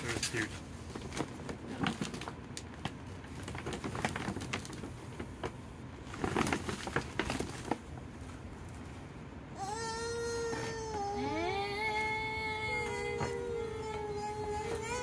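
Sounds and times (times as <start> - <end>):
gift bag rustling and crinkling: 0.0 - 7.9.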